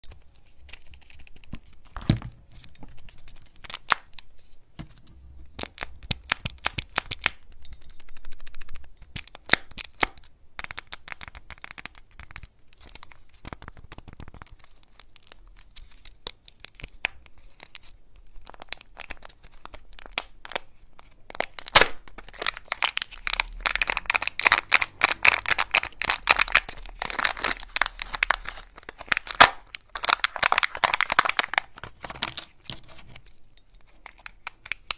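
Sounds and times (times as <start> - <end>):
foil wrappers crinkling and tearing: 11.2 - 34.9.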